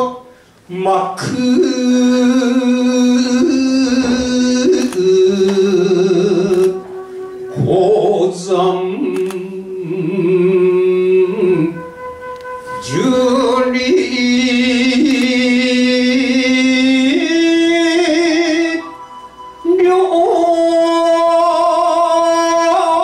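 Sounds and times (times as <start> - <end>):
man chanting poetry: 0.0 - 6.9.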